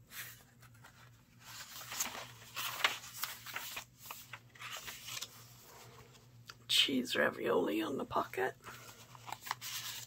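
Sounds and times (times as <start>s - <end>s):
paper pages rustling: 0.0s - 6.5s, 8.6s - 10.0s.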